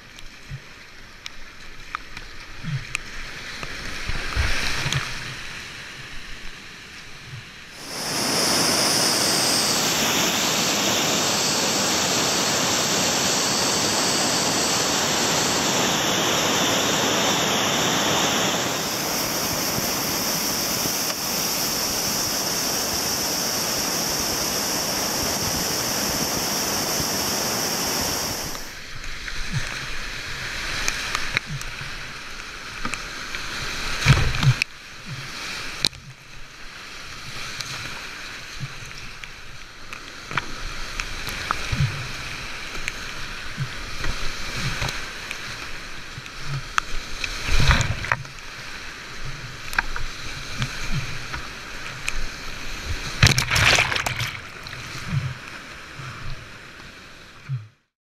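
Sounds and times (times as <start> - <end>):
water splashing around kayak: 0.0 - 57.7
whitewater rushing: 7.8 - 28.9, 53.1 - 55.1.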